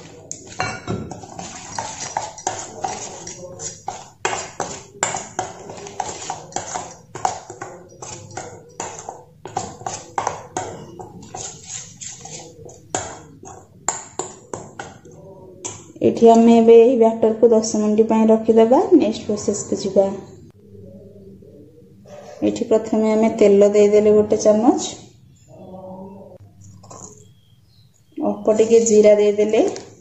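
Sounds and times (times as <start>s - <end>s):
spoon scraping metal bowl: 0.0s - 15.2s.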